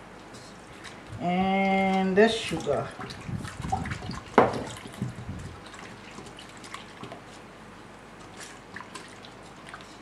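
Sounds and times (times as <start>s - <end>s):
liquid swishing: 1.7s - 7.4s.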